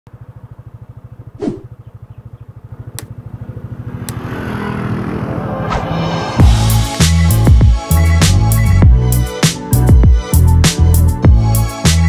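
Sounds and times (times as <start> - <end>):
motorcycle engine idling: 0.1 - 5.3.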